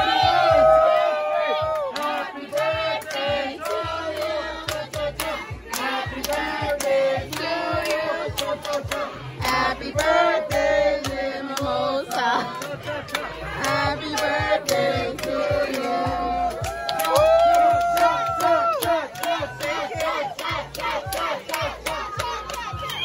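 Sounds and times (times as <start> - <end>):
bass line: 12.8 - 23.0.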